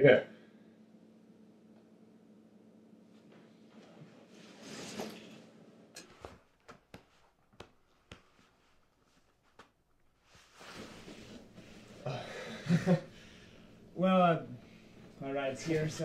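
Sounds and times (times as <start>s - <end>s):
clothing rustle: 3.2s - 12.0s
hands patting a back: 6.2s - 9.8s.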